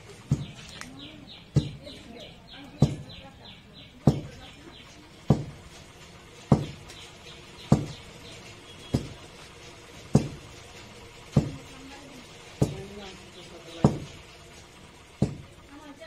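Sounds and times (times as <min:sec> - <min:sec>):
wooden pestle thudding in mortar: 0:06.5 - 0:06.9, 0:11.3 - 0:11.6.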